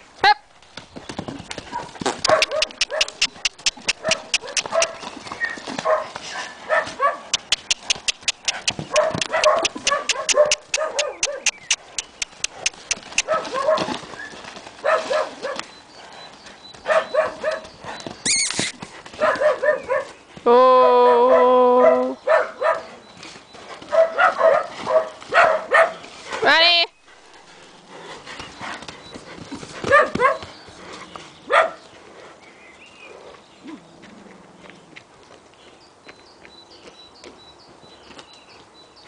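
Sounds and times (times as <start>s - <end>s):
horse hoofbeats: 0.6s - 20.6s, 22.6s - 32.1s
short high calls: 18.2s - 18.8s.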